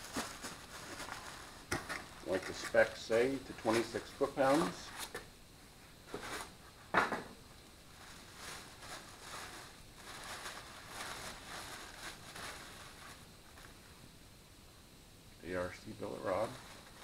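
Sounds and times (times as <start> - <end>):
packaging wrap crinkling: 0.0 - 5.2, 7.9 - 13.8.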